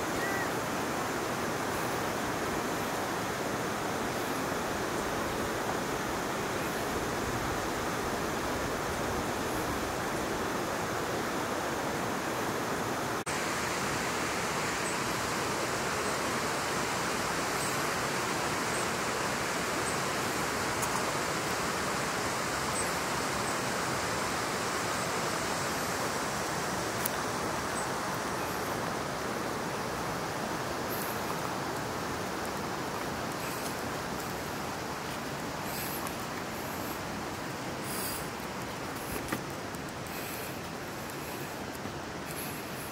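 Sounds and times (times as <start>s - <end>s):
river rushing: 0.0s - 42.9s
faint high chirps: 0.1s - 0.5s.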